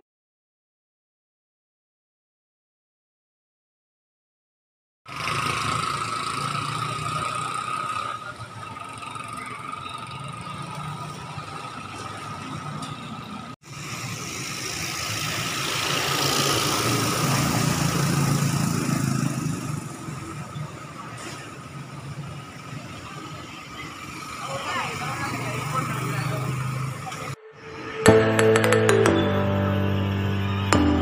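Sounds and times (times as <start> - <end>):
vehicle engines running: 5.1 - 27.5
vehicle passing close: 5.1 - 27.9.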